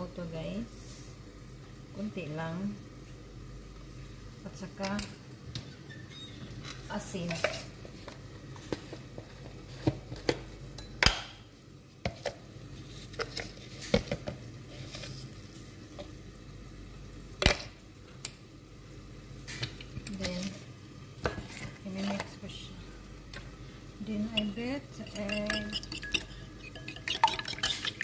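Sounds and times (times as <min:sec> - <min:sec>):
faint sizzle of frying: 0:00.0 - 0:28.0
utensils clinking against dishes: 0:24.4 - 0:28.0.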